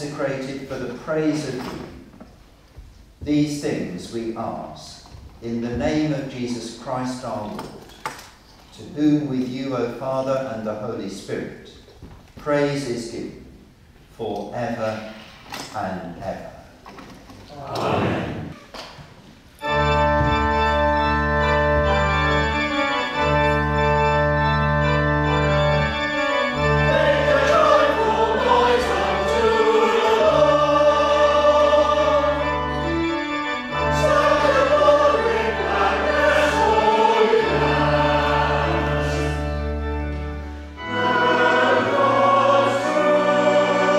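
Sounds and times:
choir singing: 17.6 - 18.6, 25.2 - 43.9
pipe organ chords: 19.6 - 43.9.

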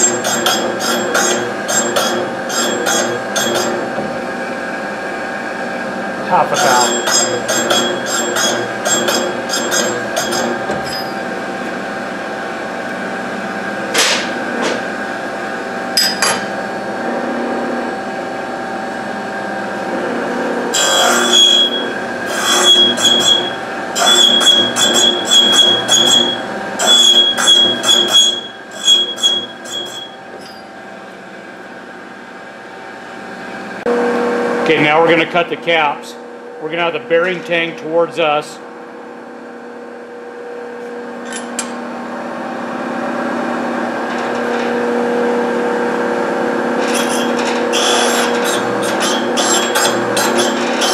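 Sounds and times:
grinder humming: 0.0 - 16.9, 19.7 - 31.3, 41.2 - 50.9.

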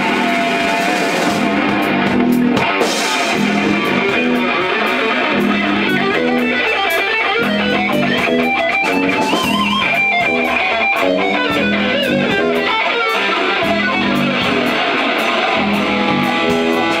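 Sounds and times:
electric guitar solo: 0.0 - 17.0
sustained bass notes: 0.0 - 17.0.

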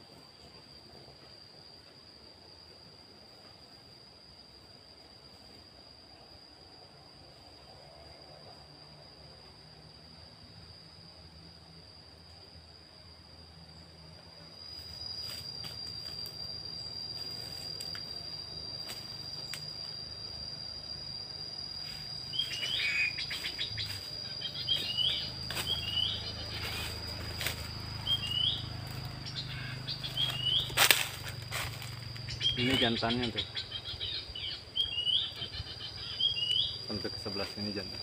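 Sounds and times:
insect high-pitched drone: 0.0 - 38.0
bird short sharp chirps: 22.3 - 26.8
undergrowth rustling and snapping: 24.9 - 25.9, 26.6 - 27.7, 30.0 - 32.1.

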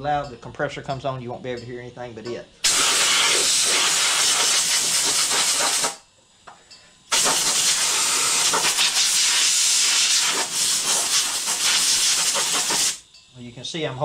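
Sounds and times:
compressed air blow gun hiss: 2.6 - 6.0, 7.1 - 13.0.

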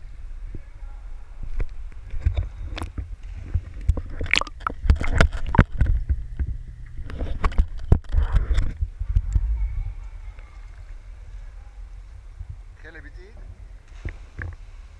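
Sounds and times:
pool water sloshing and splashing: 0.0 - 6.3, 13.6 - 14.9
underwater gurgling: 1.9 - 9.4.

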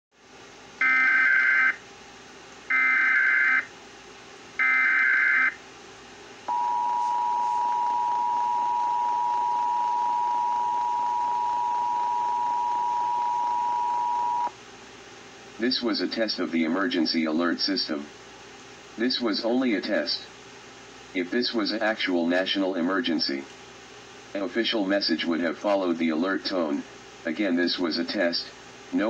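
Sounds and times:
screeching data tone bursts: 0.8 - 1.8, 2.7 - 3.7, 4.6 - 5.6, 6.5 - 14.5
two-tone attention signal: 6.5 - 14.5.

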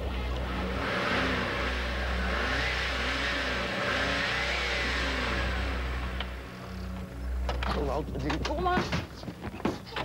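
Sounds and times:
off-roader engine revving: 0.0 - 7.7.

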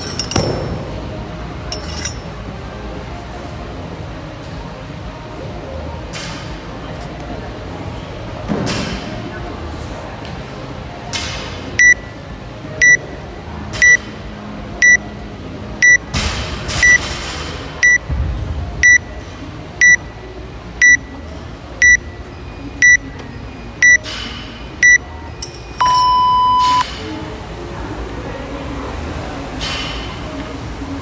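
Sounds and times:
long low timer beep: 11.8 - 12.0, 13.8 - 14.0, 18.8 - 19.1, 19.8 - 20.0, 20.8 - 21.1, 21.8 - 22.0, 22.8 - 23.0, 25.8 - 26.8
short high timer beeps: 11.8 - 12.0, 13.8 - 14.0, 18.8 - 19.0, 19.8 - 20.0, 20.8 - 21.1, 21.8 - 22.0, 22.8 - 23.0.

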